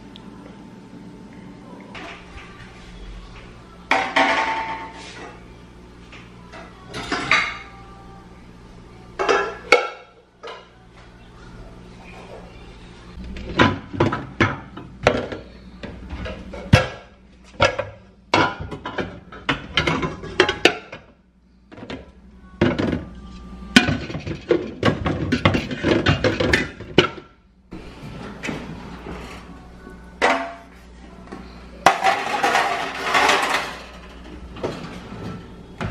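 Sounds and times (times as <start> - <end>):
metal pots and pans clanking: 9.2 - 10.7, 13.4 - 21.0, 23.8 - 27.3, 31.8 - 35.9.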